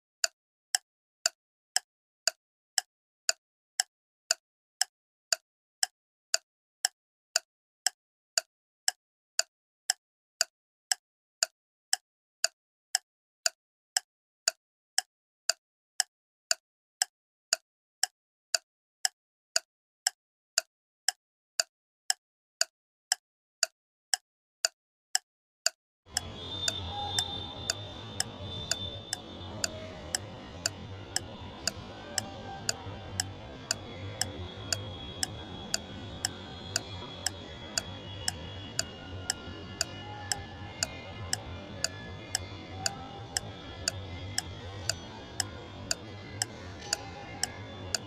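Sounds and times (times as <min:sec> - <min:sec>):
clock ticking: 0:26.1 - 0:48.0.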